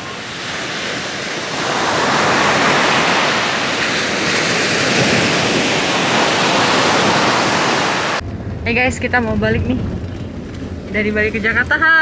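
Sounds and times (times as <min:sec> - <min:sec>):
waves breaking on a beach: 0:00.0 - 0:08.2.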